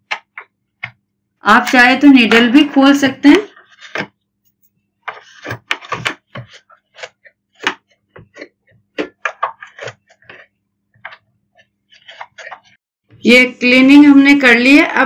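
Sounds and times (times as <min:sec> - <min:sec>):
clicks and knocks on plastic: 0:00.0 - 0:01.0.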